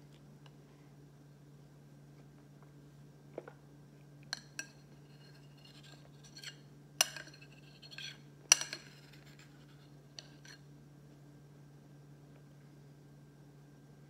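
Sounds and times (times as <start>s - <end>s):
cutlery clinking against a bowl: 4.2s - 10.6s.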